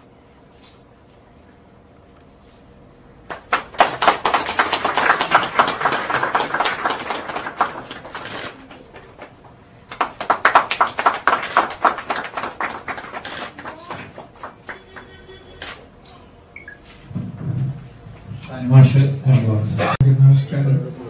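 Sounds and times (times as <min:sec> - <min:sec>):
small group applauding: 0:03.2 - 0:15.8.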